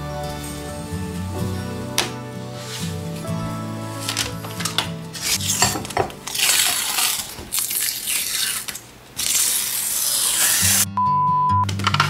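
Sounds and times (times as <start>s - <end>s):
paper backing peeled off plastic: 2.6s - 10.9s.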